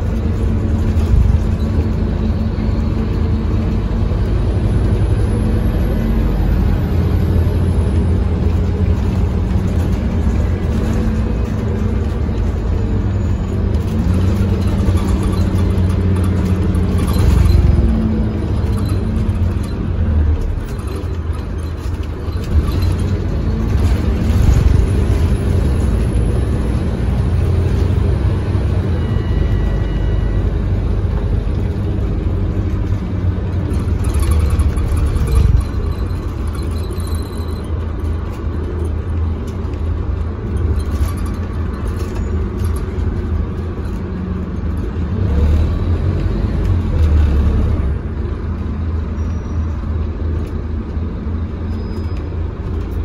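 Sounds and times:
bus diesel engine running: 0.0 - 53.0
road and body noise: 0.0 - 53.0.

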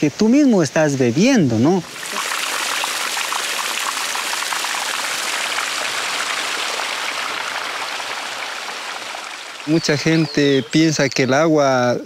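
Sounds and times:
water pouring from pipe splashing: 1.8 - 11.0.

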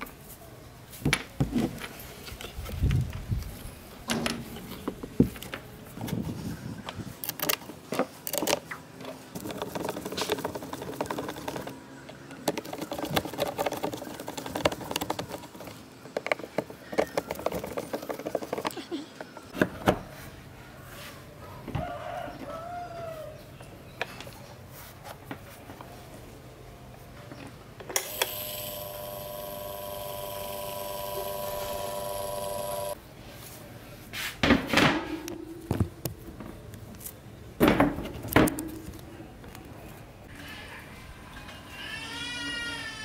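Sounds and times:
plastic parts knocking: 9.3 - 11.8, 12.4 - 19.7.

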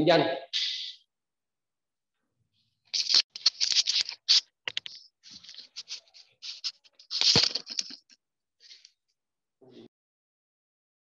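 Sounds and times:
scratchy rustles and light taps: 2.9 - 8.8.

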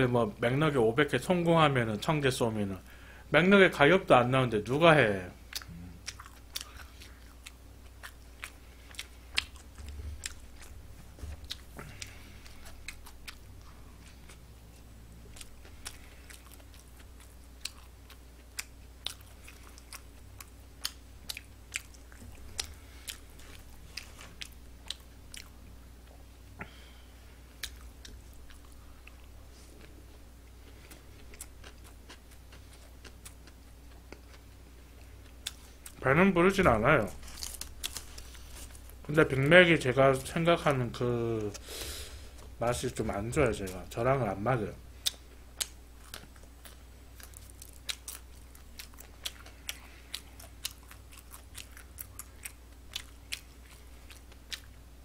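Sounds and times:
chewing hamburger: 5.4 - 26.6, 27.4 - 36.0, 45.0 - 55.0.

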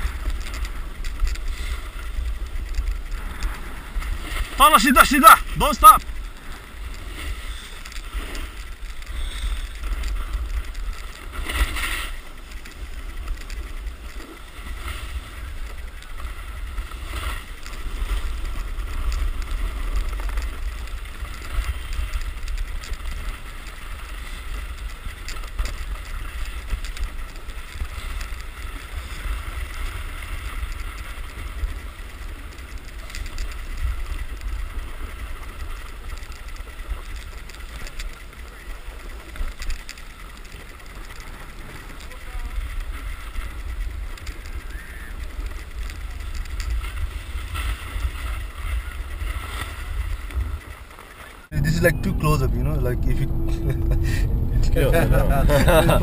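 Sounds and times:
skis scraping on packed snow: 0.0 - 5.4, 6.1 - 52.8
wind buffeting microphone: 51.5 - 56.0.

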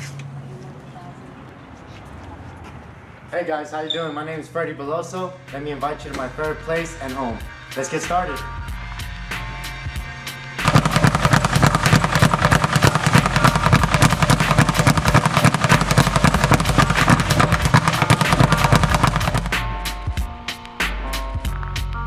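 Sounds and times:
speed bag rattling: 10.6 - 19.6.

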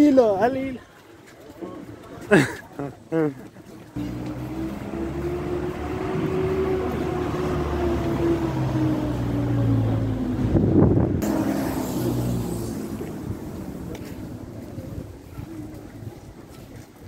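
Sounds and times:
vehicle engine humming: 3.9 - 17.0.

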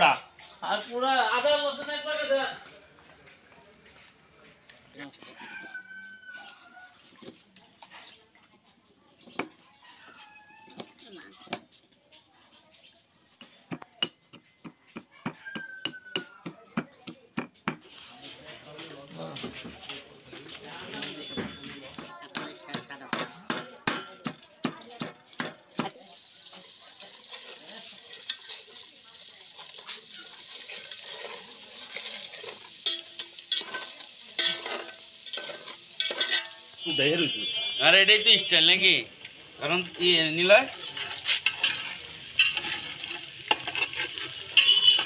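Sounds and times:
food sizzling in oil: 5.4 - 12.0, 20.7 - 45.0
knocks ringing against pot: 15.2 - 16.6, 44.5 - 45.0
metal spatula scraping pot: 22.0 - 36.9, 39.8 - 45.0.

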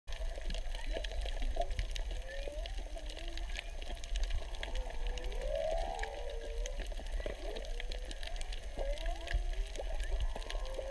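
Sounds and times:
whale song moaning calls: 2.1 - 10.9.

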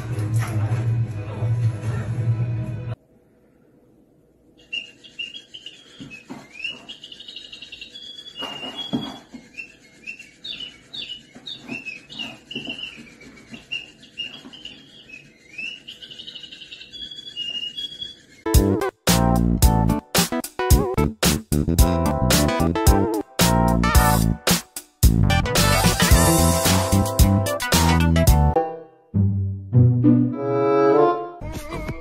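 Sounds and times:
bird toy chirping: 4.6 - 18.5
loud music: 18.5 - 31.4.

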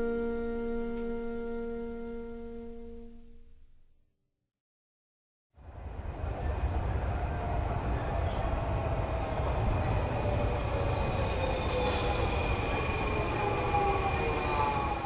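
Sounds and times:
train whine falling in pitch: 0.0 - 3.4
underground train rumble: 5.6 - 15.0.

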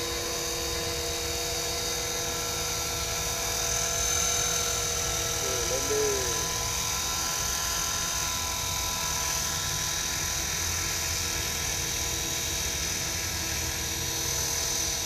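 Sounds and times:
helicopter rotor rushing: 0.0 - 15.0
high-pitched electric motor whine: 0.0 - 15.0.

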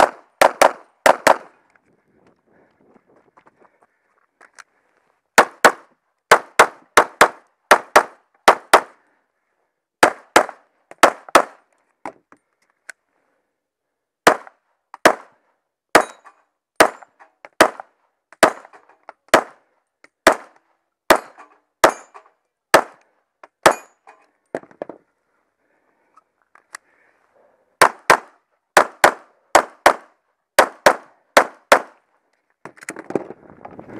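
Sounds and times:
pistol shots: 18.4 - 19.6, 20.2 - 20.5, 21.1 - 22.1, 27.8 - 32.0.

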